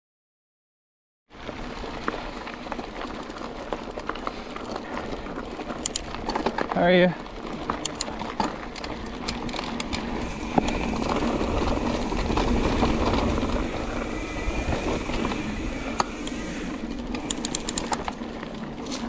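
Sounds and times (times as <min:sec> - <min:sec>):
bike tyres rolling over gravel: 0:01.3 - 0:19.0
bike rattling and clicking: 0:01.4 - 0:19.0
wind buffeting microphone: 0:08.9 - 0:18.2.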